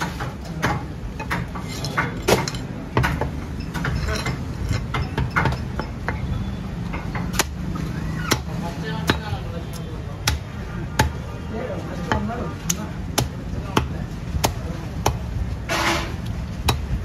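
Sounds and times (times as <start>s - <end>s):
cleaver chopping on wooden block: 7.1s - 7.6s, 10.2s - 11.2s.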